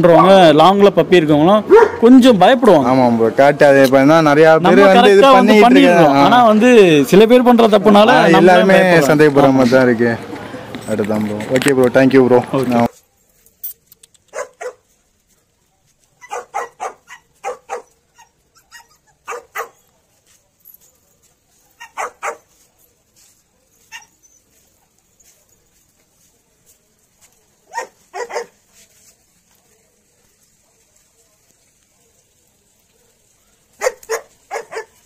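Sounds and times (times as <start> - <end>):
dogs barking: 0.1 - 0.5, 1.6 - 2.1, 14.3 - 14.9, 15.6 - 20.0, 20.9 - 22.6, 27.6 - 28.6, 31.8 - 35.0.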